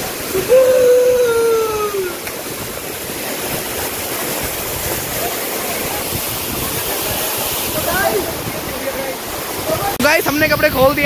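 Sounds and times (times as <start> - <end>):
waterfall rushing: 0.0 - 11.0
person shouting: 0.3 - 2.2.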